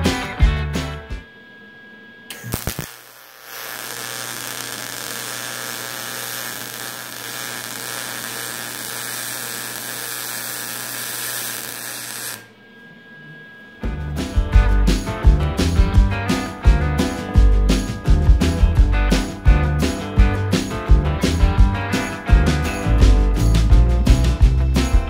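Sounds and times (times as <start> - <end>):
welding gun clicks: 2.3 - 12.4
welding arc hissing: 2.3 - 12.5.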